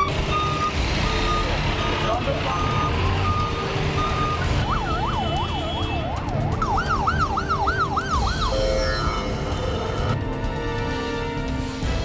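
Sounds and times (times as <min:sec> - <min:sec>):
emergency vehicle siren: 0:00.0 - 0:10.1.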